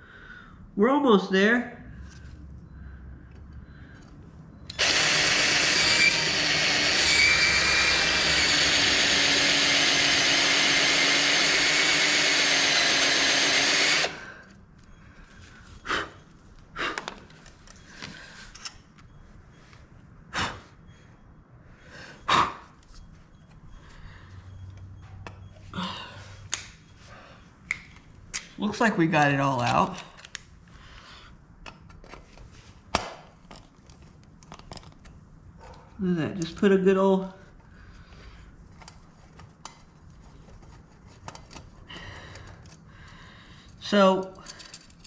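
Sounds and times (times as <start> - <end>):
cordless drill drilling metal: 4.7 - 14.3.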